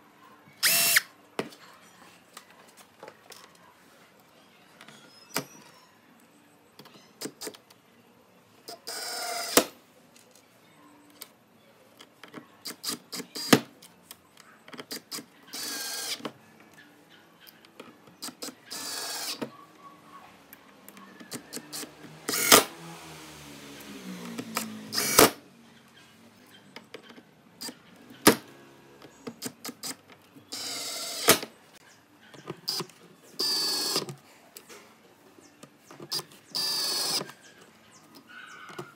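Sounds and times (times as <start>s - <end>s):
cordless drill driving screws: 0.6s - 1.0s, 21.3s - 22.7s, 24.4s - 25.4s, 29.8s - 31.5s, 33.4s - 34.1s, 36.5s - 37.3s.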